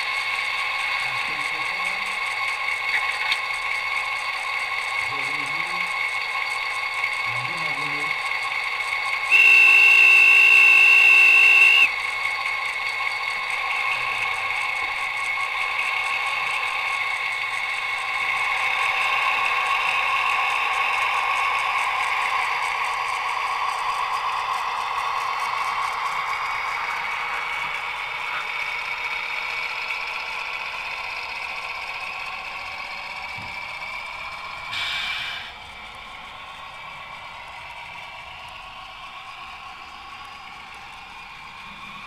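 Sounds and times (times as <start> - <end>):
model diesel engine sound: 0.0 - 42.0
locomotive horn blast: 9.3 - 11.9.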